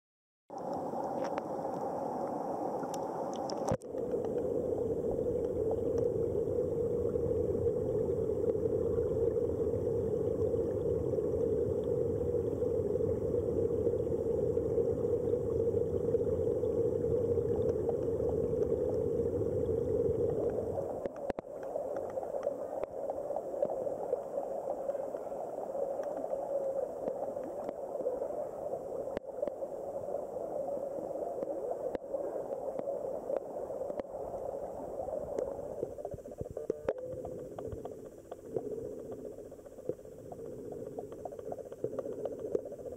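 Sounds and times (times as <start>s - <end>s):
faint ticks: 0.5s - 4.6s, 5.3s - 6.2s, 15.3s - 28.3s, 29.0s - 30.1s, 31.4s - 42.9s
underwater stream rushing: 0.5s - 42.9s.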